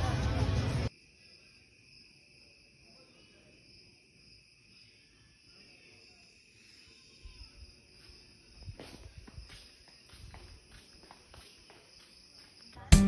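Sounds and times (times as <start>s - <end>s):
crickets chirping: 0.9s - 13.0s.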